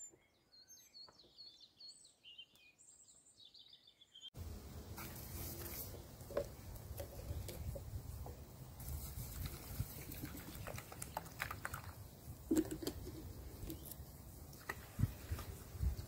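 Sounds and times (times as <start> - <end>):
grains clicking and pattering: 8.8 - 14.0.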